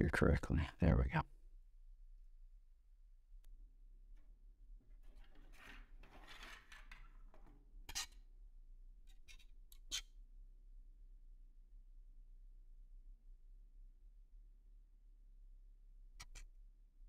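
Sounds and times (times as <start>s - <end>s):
plastic parts scraping on wood: 5.0s - 8.1s.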